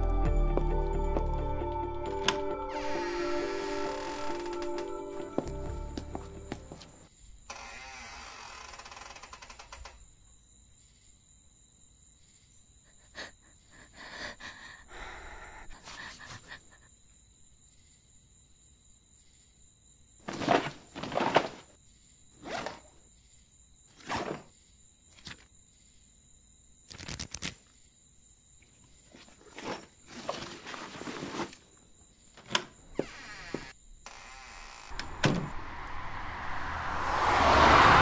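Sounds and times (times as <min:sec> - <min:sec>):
passing car road noise: 0:34.8 - 0:38.0.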